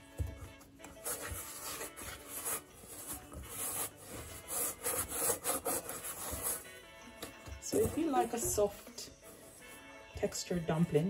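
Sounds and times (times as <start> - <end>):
dough rubbing and scraping in pan: 0.9 - 6.7, 7.6 - 9.9.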